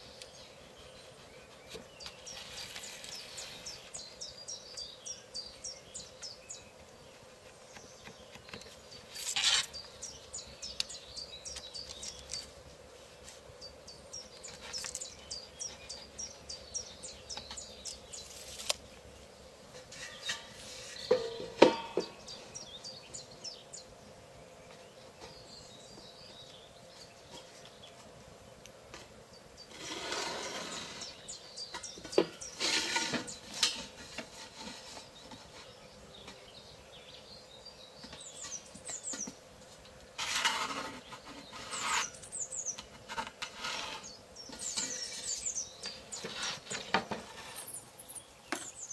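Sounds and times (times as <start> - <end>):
small bird chirping: 0.0 - 12.6, 13.6 - 18.7, 29.4 - 39.4, 40.7 - 43.0, 43.6 - 48.9
scrape on workbench: 1.7 - 3.9, 9.1 - 9.8, 19.8 - 22.1, 29.7 - 31.3, 32.1 - 35.8, 40.2 - 42.3, 43.0 - 47.9.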